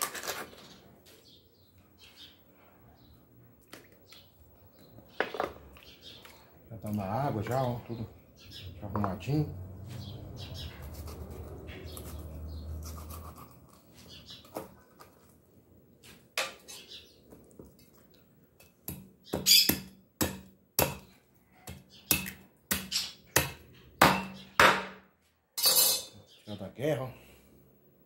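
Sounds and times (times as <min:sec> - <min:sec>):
knife chopping on wooden board: 0:18.9 - 0:21.1, 0:21.7 - 0:25.0.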